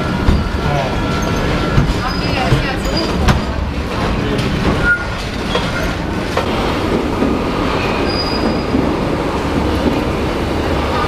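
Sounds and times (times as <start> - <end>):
subway train rumbling: 0.0 - 11.0
high wheel squeals: 0.2 - 3.3, 4.8 - 6.1, 7.8 - 8.9.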